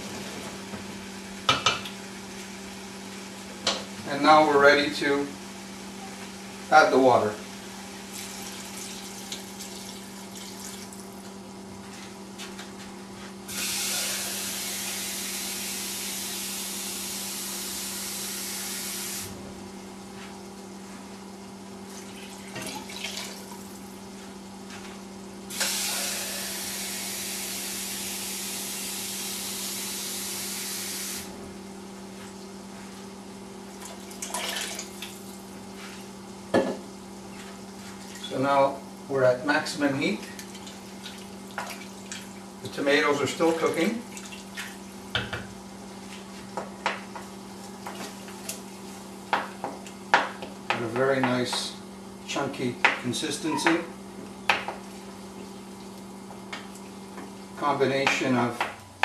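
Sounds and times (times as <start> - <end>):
water filling a pot: 22.0 - 23.5, 33.8 - 35.1.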